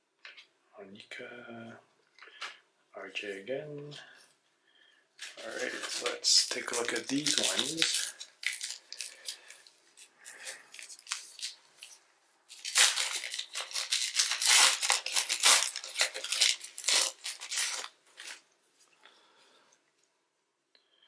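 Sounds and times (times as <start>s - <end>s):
cards being handled: 5.2s - 18.4s
wrapper tearing and crinkling: 5.2s - 18.4s.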